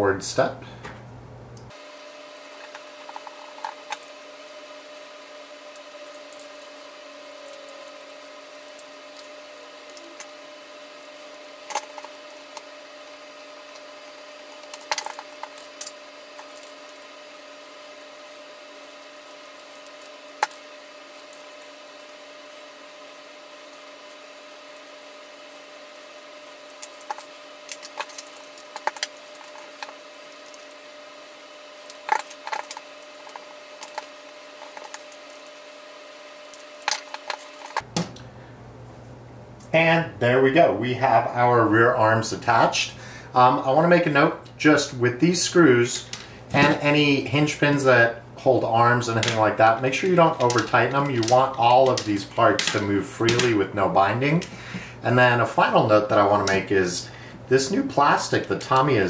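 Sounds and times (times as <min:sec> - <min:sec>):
faint electrical hum: 0:00.0 - 0:59.0
plastic parts clicking and rattling: 0:50.4 - 0:53.5.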